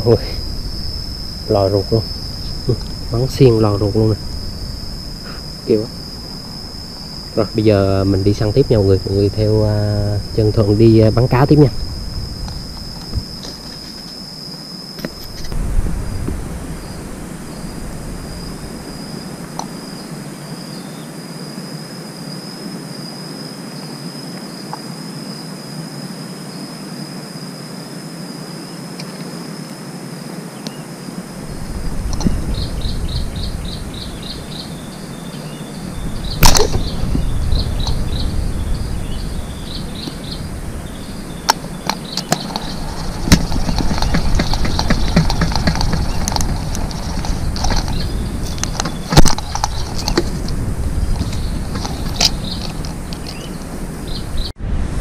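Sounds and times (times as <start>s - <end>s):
insects buzzing and chirping: 0.0s - 55.0s
sharp snap: 36.4s - 36.9s.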